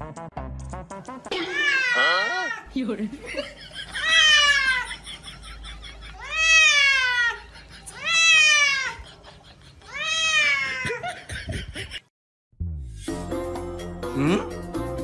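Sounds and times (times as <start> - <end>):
cat meowing: 1.3 - 2.7, 6.2 - 7.4, 8.0 - 9.0, 9.9 - 10.8.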